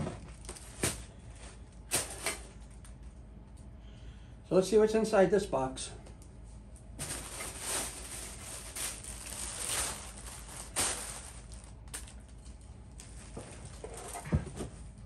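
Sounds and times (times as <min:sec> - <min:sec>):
plastic packaging crinkling: 0:07.0 - 0:14.2.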